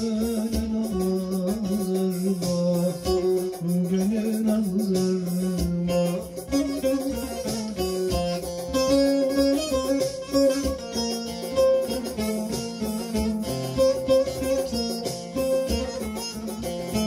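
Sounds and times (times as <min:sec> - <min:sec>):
person singing: 0:00.0 - 0:08.1
plucked long-necked lute melody: 0:00.0 - 0:17.0.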